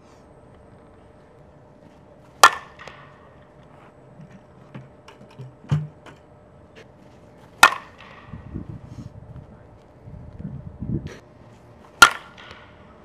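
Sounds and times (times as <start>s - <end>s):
bat cracking against ball: 2.3s - 8.5s, 11.9s - 12.9s.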